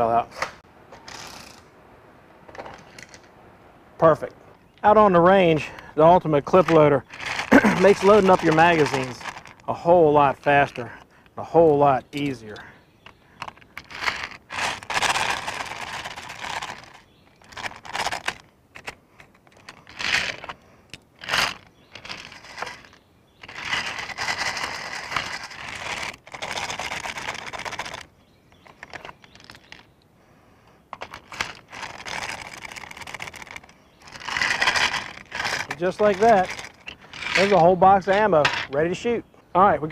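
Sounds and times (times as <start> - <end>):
cartridges rattling in a loader: 5.5 - 9.5, 30.9 - 38.8.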